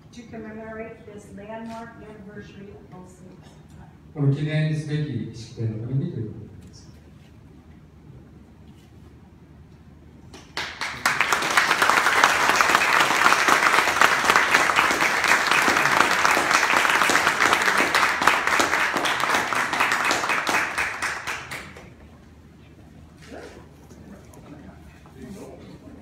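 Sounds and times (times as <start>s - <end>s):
audience applauding: 10.3s - 22.0s.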